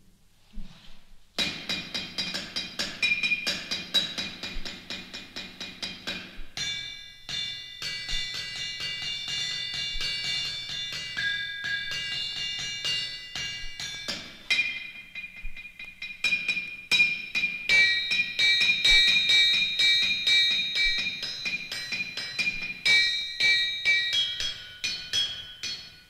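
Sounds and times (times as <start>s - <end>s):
hammers striking metal anvils: 1.4s - 26.0s.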